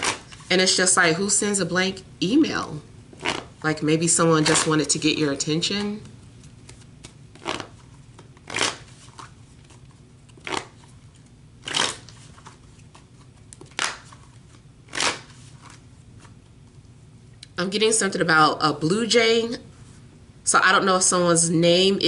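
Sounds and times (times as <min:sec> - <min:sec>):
cards being shuffled: 0:03.1 - 0:03.6, 0:05.8 - 0:16.5.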